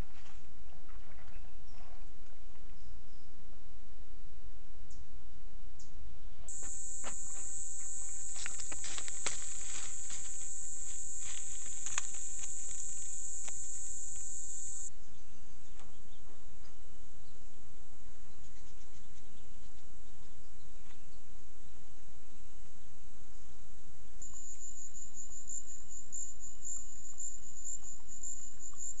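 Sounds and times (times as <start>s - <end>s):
high insect buzz: 6.5s - 14.9s.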